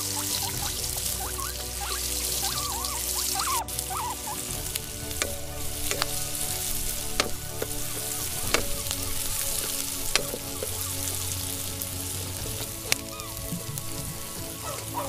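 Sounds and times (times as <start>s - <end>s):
oil sizzling in a wok: 0.0s - 15.0s.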